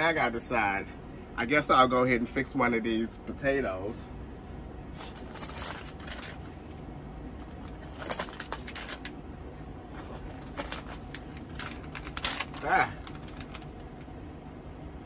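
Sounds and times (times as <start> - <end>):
steady low hum: 0.0 - 15.0
packets crinkling and rustling: 4.9 - 6.5, 7.4 - 9.1, 9.9 - 13.8.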